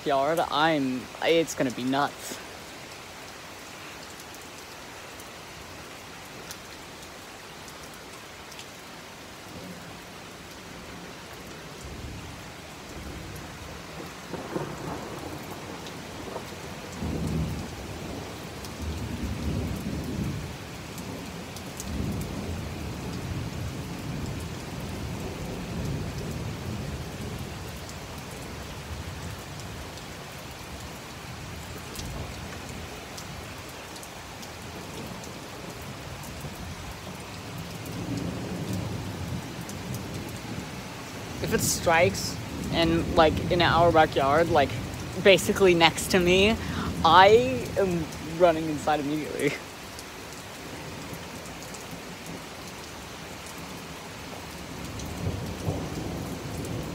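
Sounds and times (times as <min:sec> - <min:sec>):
heavy rain falling: 0:00.0 - 0:56.9
thunder rolling: 0:14.3 - 0:18.2.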